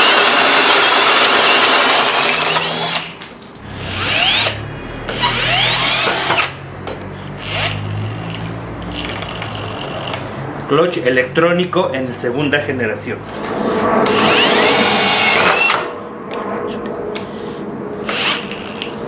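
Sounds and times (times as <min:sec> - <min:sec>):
drill driving screw into wood: 0:00.0 - 0:03.1, 0:03.7 - 0:06.6, 0:07.3 - 0:10.3, 0:14.0 - 0:15.9, 0:18.0 - 0:18.9
hammer drill boring through wood: 0:00.0 - 0:03.1, 0:03.7 - 0:06.6, 0:07.3 - 0:10.3, 0:14.0 - 0:15.9, 0:18.0 - 0:19.0.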